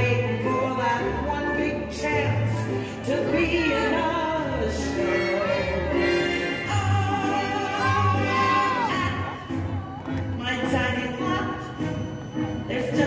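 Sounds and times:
person singing long notes: 4.4s - 10.0s.

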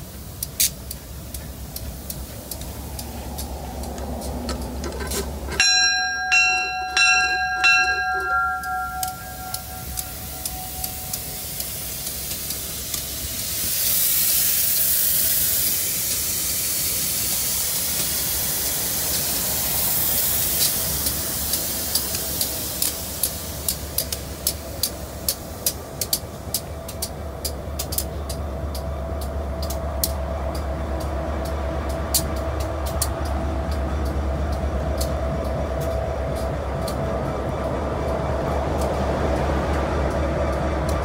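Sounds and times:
loud steady hiss: 0.0s - 31.3s
diesel locomotive rumbling: 0.0s - 41.0s
locomotive bell ringing: 4.9s - 12.7s.

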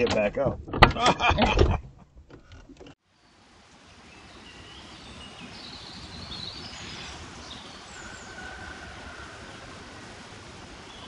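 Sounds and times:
small birds chirping: 3.1s - 10.2s.

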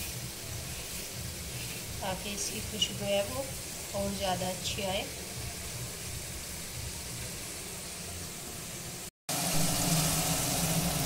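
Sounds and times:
water poured into sizzling pan: 0.0s - 4.0s, 9.3s - 11.0s.

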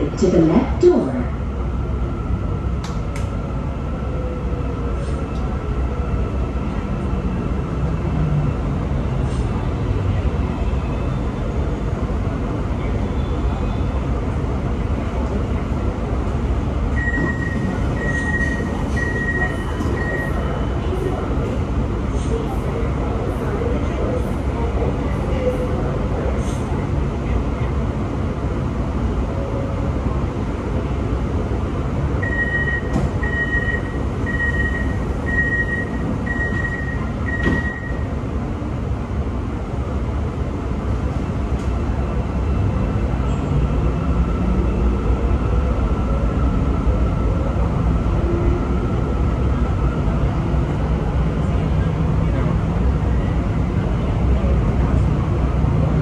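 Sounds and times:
train low rumble: 0.0s - 56.0s
short high beeps: 17.0s - 20.4s, 32.2s - 38.1s.

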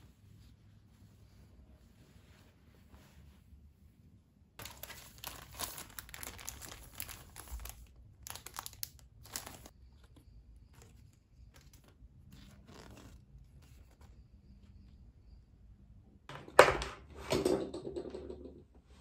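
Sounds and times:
cellophane sleeves crinkling: 4.6s - 14.2s.

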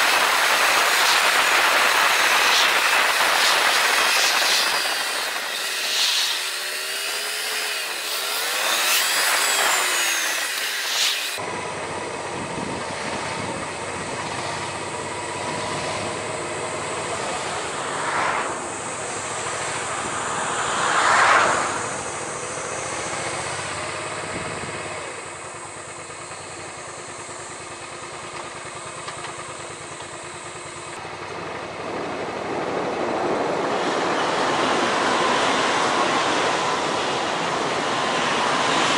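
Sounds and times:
motorcycle engine: 0.0s - 38.9s
wind and road noise: 0.0s - 38.9s.

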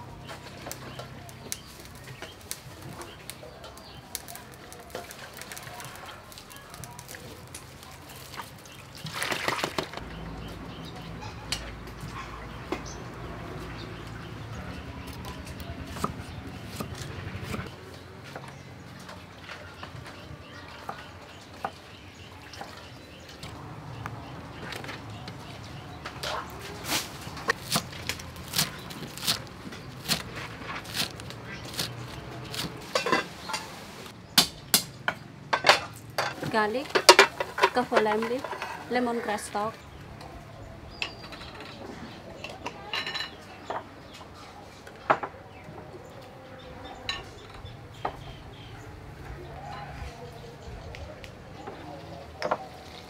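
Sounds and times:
crackling rustle of stalk: 0.2s - 9.3s, 23.4s - 34.2s.

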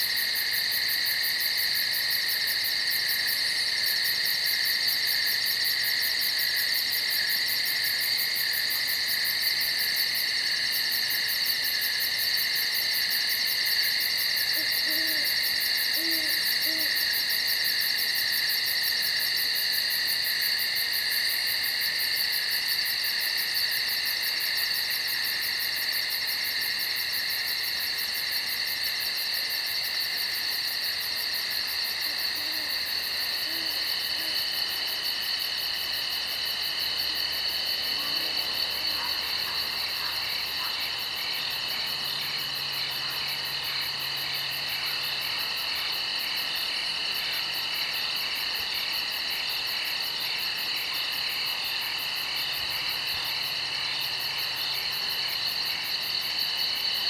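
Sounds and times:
night insects chorus: 0.0s - 57.0s
owl hooting: 14.6s - 17.0s, 33.4s - 34.4s.

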